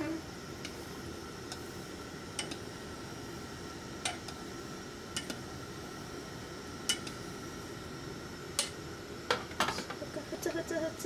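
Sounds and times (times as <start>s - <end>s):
low background hum: 0.0s - 11.0s
chopsticks tapping metal pot: 2.4s - 2.6s.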